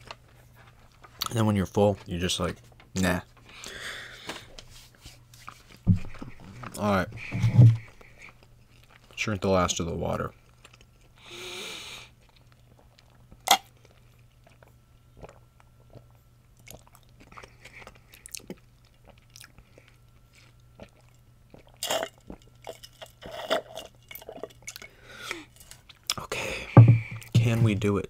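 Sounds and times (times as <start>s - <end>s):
chewing and swallowing: 7.9s - 9.2s, 10.4s - 11.2s, 12.2s - 27.4s.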